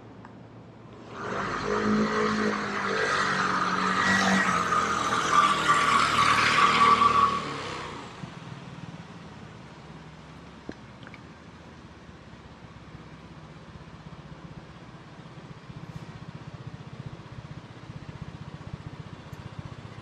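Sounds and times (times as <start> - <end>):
motor vehicle passing with whine: 0.6 - 10.2.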